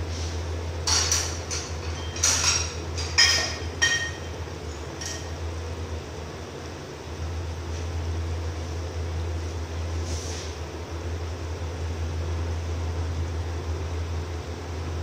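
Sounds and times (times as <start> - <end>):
steady low hum: 0.0 - 15.0
metal utensil clinking on pot: 0.9 - 4.3.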